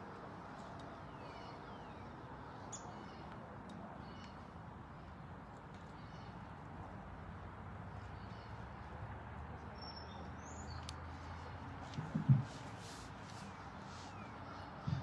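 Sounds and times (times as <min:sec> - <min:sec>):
low background noise: 0:00.0 - 0:15.0
faint bird chirps: 0:00.9 - 0:03.4.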